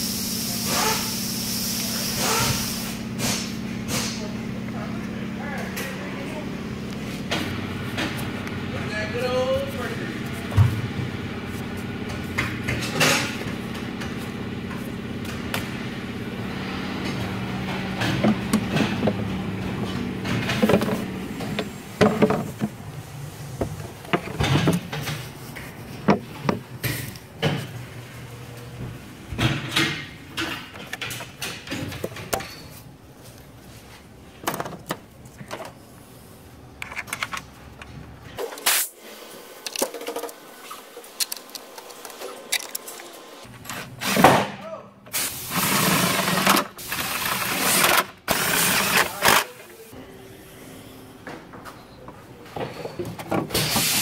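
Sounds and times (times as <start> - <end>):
steady low hum: 2.7 - 30.4
clicks and rattles of hands working: 17.0 - 22.8, 29.4 - 32.8, 36.8 - 38.6, 39.6 - 44.0.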